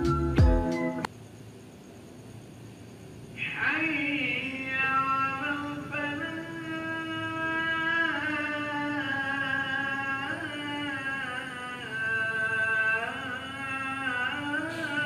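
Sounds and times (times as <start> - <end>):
man chanting call to prayer: 3.4 - 15.0.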